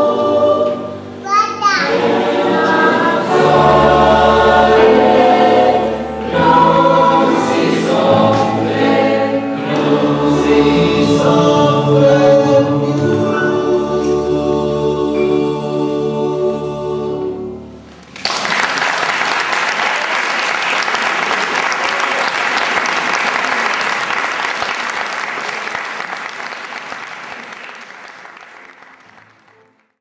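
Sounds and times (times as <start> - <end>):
choir holding a chord: 0.0 - 1.2, 1.8 - 17.9
audience applause: 18.1 - 30.0.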